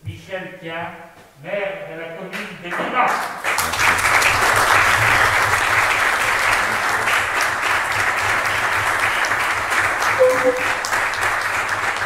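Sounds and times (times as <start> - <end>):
people applauding: 2.7 - 12.0.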